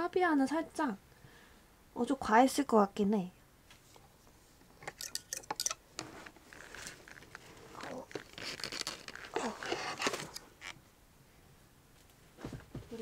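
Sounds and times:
doll handling rustling and scraping: 0:03.7 - 0:10.8.

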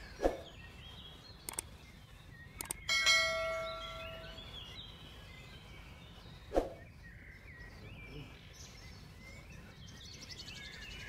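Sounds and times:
faint bird chirps: 0:00.0 - 0:11.0
metallic strike ringing like a bell: 0:02.9 - 0:04.4.

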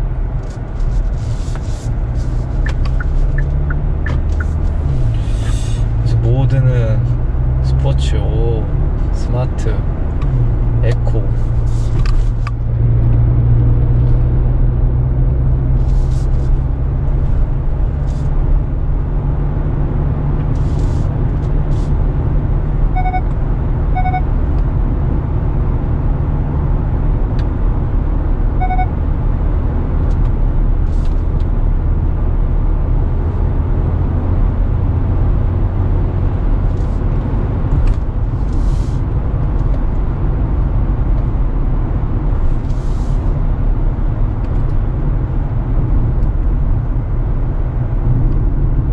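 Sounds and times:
road and tyre rumble in car: 0:00.0 - 0:48.9
short electronic beeps: 0:02.6 - 0:04.6, 0:22.9 - 0:23.3, 0:23.9 - 0:24.3, 0:28.6 - 0:29.0.

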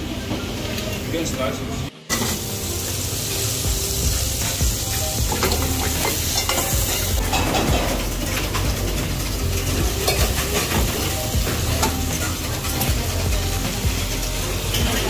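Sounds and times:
food sizzling in a pan: 0:00.2 - 0:15.0.

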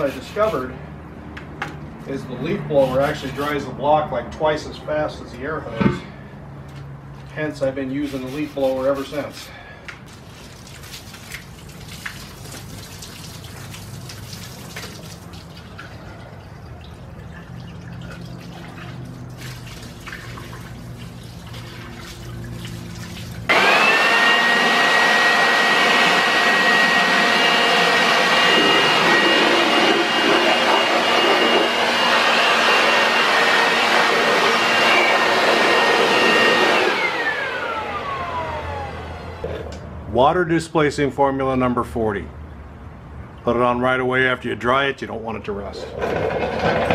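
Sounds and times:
garden hose splashing water: 0:08.0 - 0:23.5
leaf blower whining: 0:23.5 - 0:39.6.

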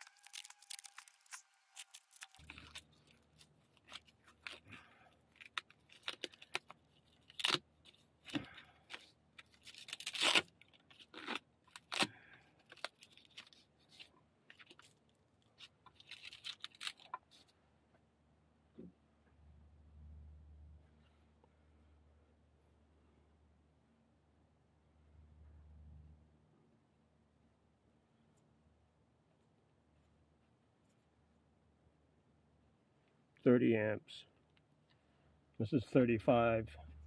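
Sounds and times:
strap rasping rips: 0:00.0 - 0:14.9, 0:15.6 - 0:17.4
bag clicks and rustling: 0:00.0 - 0:15.0.

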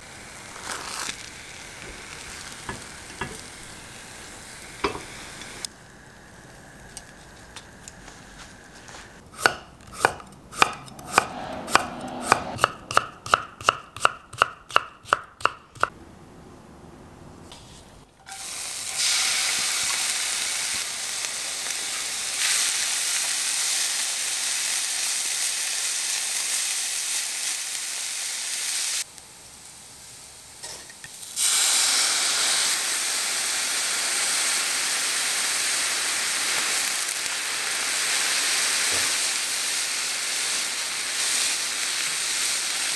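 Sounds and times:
vegetables sizzling in frying pan: 0:00.0 - 0:09.2, 0:18.2 - 0:42.9
knife chopping on wooden board: 0:09.3 - 0:15.9.

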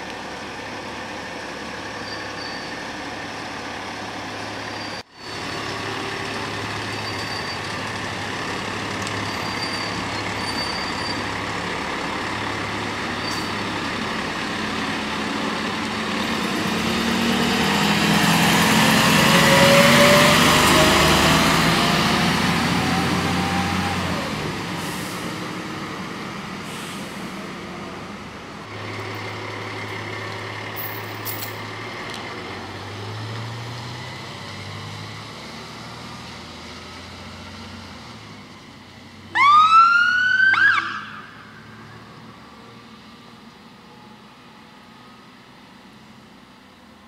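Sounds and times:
diesel engine accelerating: 0:02.9 - 0:39.3
siren whoop: 0:39.3 - 0:41.5.

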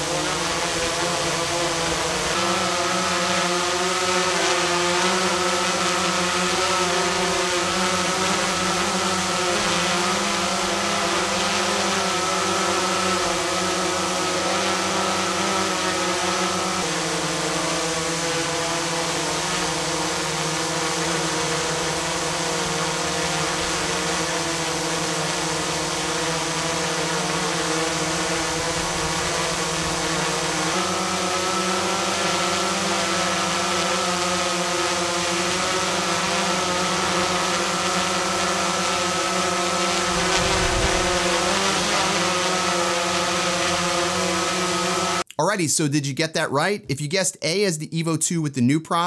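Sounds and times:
drone propellers whining: 0:04.8 - 0:45.2
low rumble: 0:40.1 - 0:41.7.

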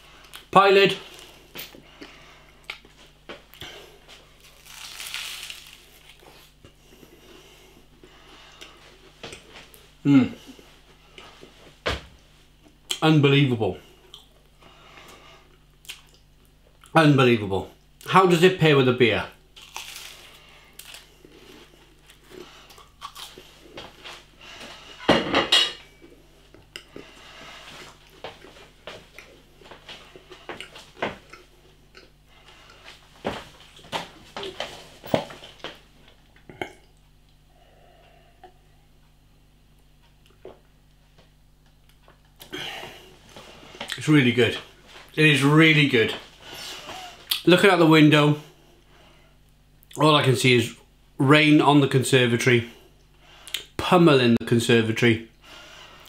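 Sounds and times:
flaky pastry crunch: 0:00.4 - 0:02.1, 0:03.6 - 0:06.7, 0:19.6 - 0:23.9.

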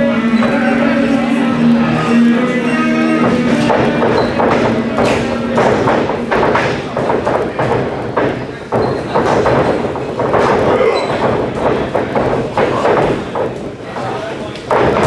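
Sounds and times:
crowd voices and shouting: 0:00.0 - 0:15.0
bodies thudding on wrestling ring: 0:03.3 - 0:13.7.

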